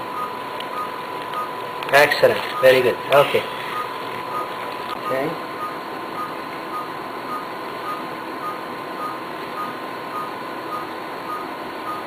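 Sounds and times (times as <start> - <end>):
steady high tone: 0.0 - 9.2
equipment hum: 0.0 - 12.0
patient monitor beeping: 0.0 - 12.0.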